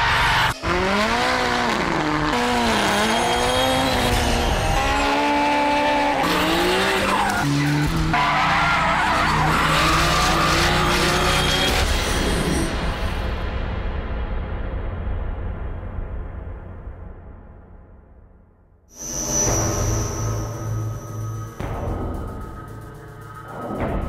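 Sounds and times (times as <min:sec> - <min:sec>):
car engines revving: 0:00.0 - 0:12.7
tyres squealing and skidding: 0:00.0 - 0:12.7, 0:19.0 - 0:21.6.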